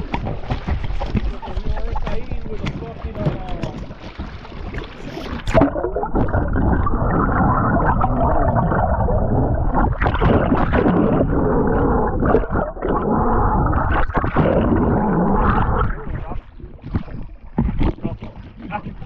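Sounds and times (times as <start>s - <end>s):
underwater rushing and gurgling: 0.0s - 19.0s.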